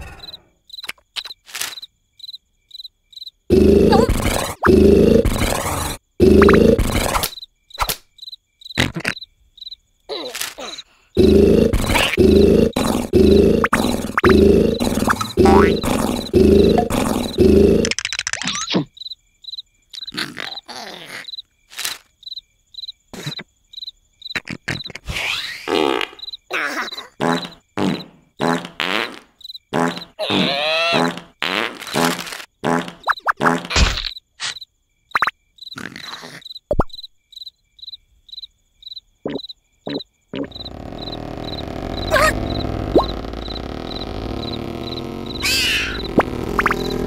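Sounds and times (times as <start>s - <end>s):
crickets chirping: 0.0s - 31.3s, 32.0s - 47.0s
cartoon squeaks and grunts: 3.8s - 7.4s, 10.1s - 10.9s, 17.2s - 18.9s, 20.0s - 21.4s, 26.5s - 27.2s, 30.2s - 31.3s, 35.8s - 36.5s, 42.0s - 43.1s, 45.3s - 46.1s
yawn: 10.1s - 11.1s, 20.1s - 21.3s.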